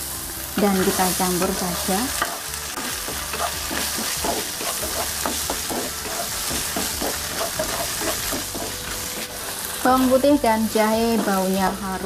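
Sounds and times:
food sizzling in hot oil: 0:00.0 - 0:12.0
wooden spatula scraping a wok: 0:00.6 - 0:10.2.

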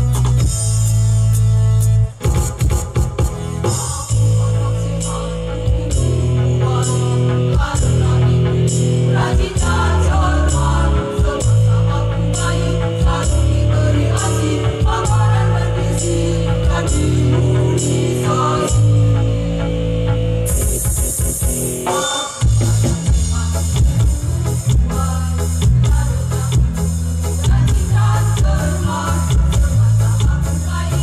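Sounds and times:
amplified music with beat: 0:00.0 - 0:26.0
women's choir singing: 0:03.9 - 0:19.8, 0:27.3 - 0:31.0.

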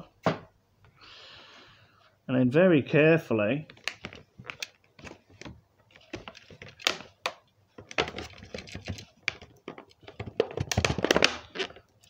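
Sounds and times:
plastic packaging clicking: 0:03.7 - 0:12.0.

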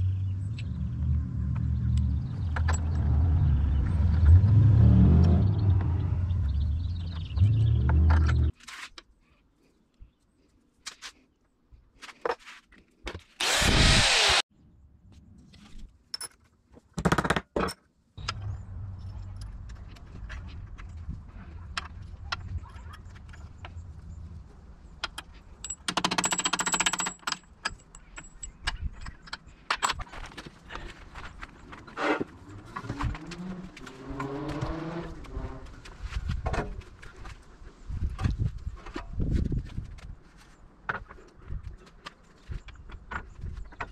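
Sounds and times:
loud bursts from a tool: 0:13.4 - 0:14.4
low outdoor hum: 0:18.2 - 0:25.9.

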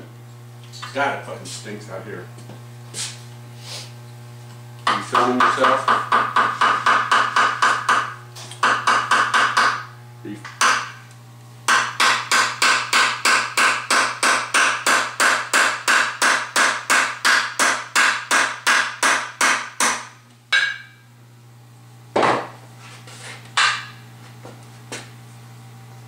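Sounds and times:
mallet striking metal: 0:11.7 - 0:21.0.

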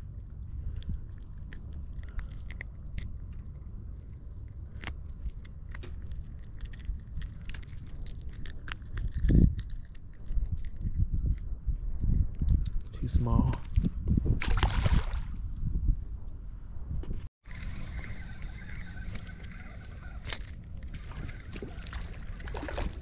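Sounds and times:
handling clicks and crackles: 0:00.7 - 0:11.5.

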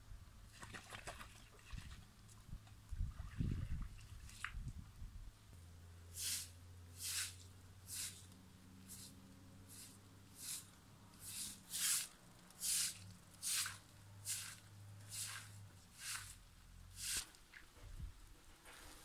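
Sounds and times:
broom sweeping wet concrete: 0:06.1 - 0:17.7.

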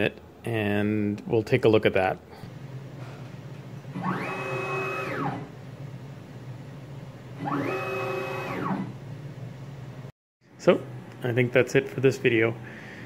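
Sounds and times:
stepper motor whining: 0:03.9 - 0:05.6, 0:07.4 - 0:09.0.

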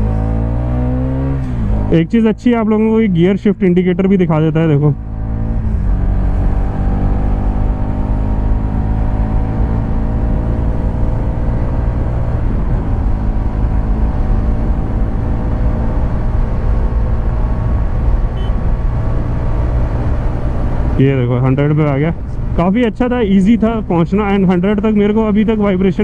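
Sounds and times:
motorcycle engine accelerating: 0:00.0 - 0:02.2, 0:04.5 - 0:25.8.

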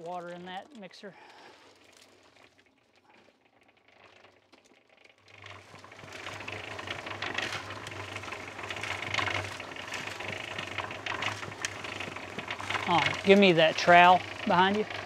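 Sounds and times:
concrete mixer humming and sloshing: 0:00.0 - 0:15.0
board scraping wet concrete: 0:05.3 - 0:15.0.

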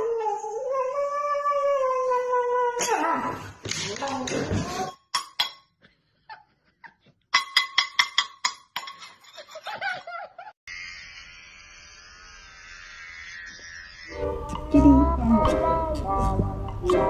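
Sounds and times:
metal utensils clinking: 0:07.4 - 0:09.6
hair clipper buzz from phone speaker: 0:10.7 - 0:15.2.

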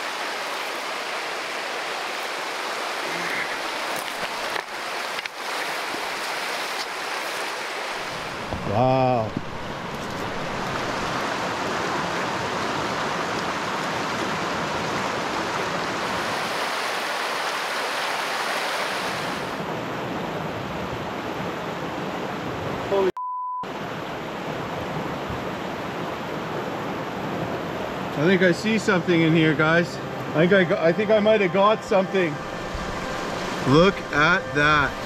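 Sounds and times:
creek rushing over rocks: 0:00.0 - 0:19.7, 0:31.5 - 0:35.0.

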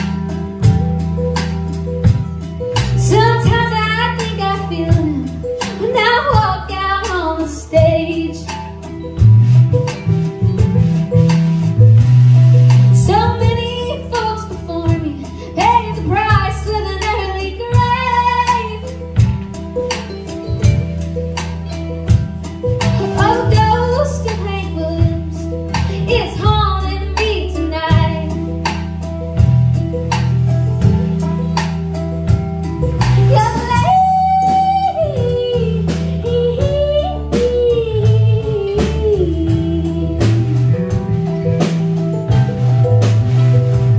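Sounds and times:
bass line: 0:00.0 - 0:43.9
country blues band playing: 0:00.0 - 0:43.9
drum kit beat: 0:00.0 - 0:43.9
guitar: 0:00.0 - 0:43.9
young woman singing: 0:03.0 - 0:08.6, 0:13.0 - 0:19.2, 0:23.0 - 0:28.5, 0:33.2 - 0:40.8.

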